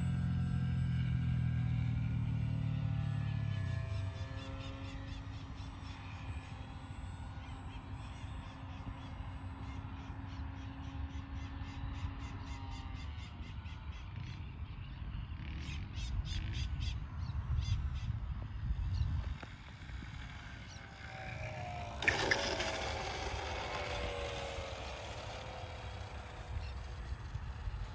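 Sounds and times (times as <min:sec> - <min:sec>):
distant model plane motor drone: 0:00.0 - 0:27.9
wind rumbling on microphone: 0:17.3 - 0:21.0.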